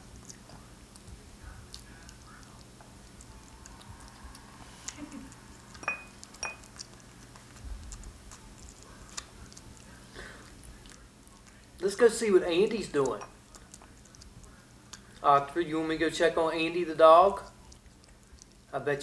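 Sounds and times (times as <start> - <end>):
cat lapping and chewing: 0.0 - 19.0
bowl clinking: 5.8 - 6.8, 13.0 - 13.4.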